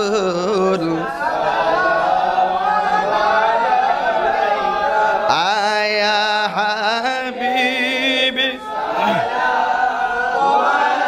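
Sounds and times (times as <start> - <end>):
man singing devotional song: 0.0 - 1.2, 5.2 - 9.3.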